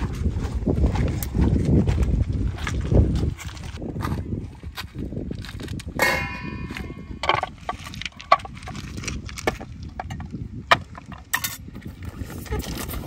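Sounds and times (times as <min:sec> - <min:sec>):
pebbles crunching underfoot: 0:00.0 - 0:13.0
knocks and clatters on rocks: 0:00.8 - 0:13.0
metal pot clanking on stones: 0:06.0 - 0:08.5.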